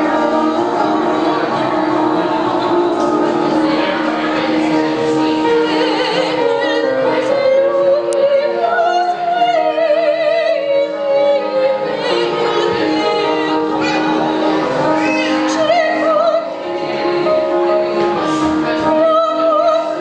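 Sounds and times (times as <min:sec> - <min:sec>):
instrumental accompaniment: 0:00.0 - 0:20.0
woman singing opera aria: 0:05.2 - 0:20.0.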